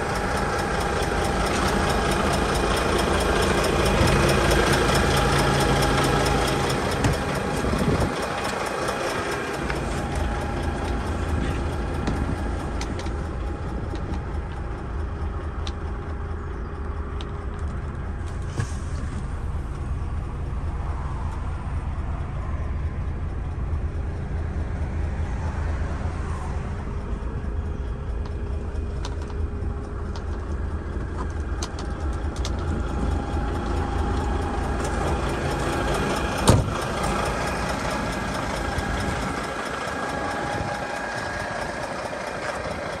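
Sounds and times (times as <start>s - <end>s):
diesel engine idling: 0.0s - 43.0s.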